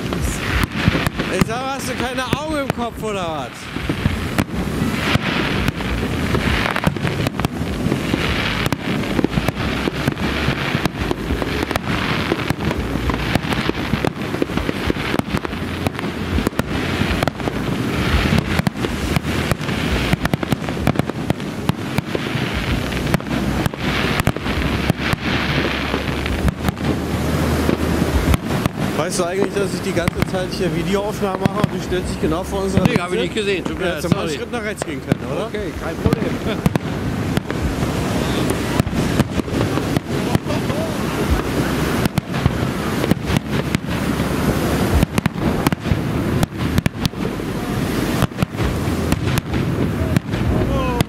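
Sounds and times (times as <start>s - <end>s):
firework shells bursting: 0.0s - 51.0s
low rumble: 0.0s - 51.0s.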